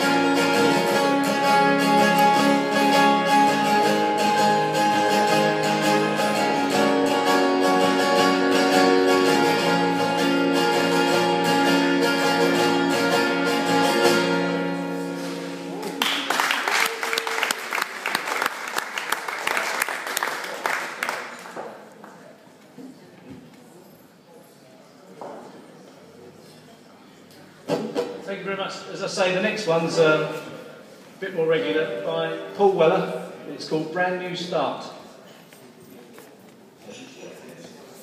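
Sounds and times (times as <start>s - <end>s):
acoustic guitars playing: 0.0s - 16.1s
audience applause: 15.7s - 22.1s.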